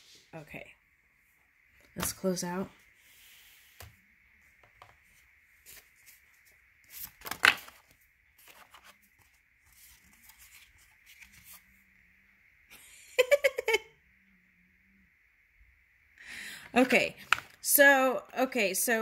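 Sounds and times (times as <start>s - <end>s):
cards rustling: 4.6s - 11.7s, 17.2s - 17.7s.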